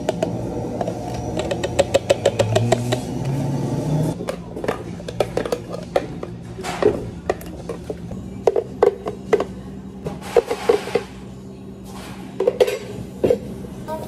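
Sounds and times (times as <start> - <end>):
spatula knocking and scraping jar: 0.0 - 3.3
light background music: 0.0 - 14.0.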